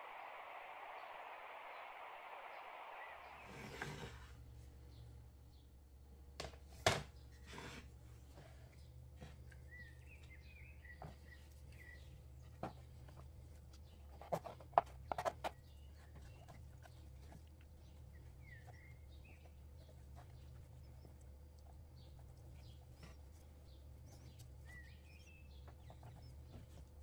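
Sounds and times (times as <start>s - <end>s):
faint bird chirps: 0.0s - 5.7s, 8.4s - 27.0s
low steady hum: 0.0s - 27.0s.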